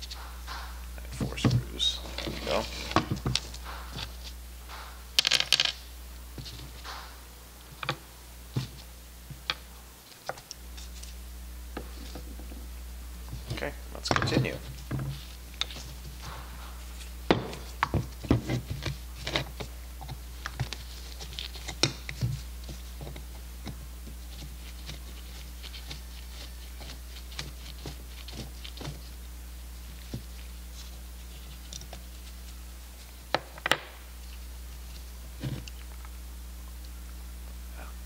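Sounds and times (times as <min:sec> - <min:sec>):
low hum: 0:00.0 - 0:33.3.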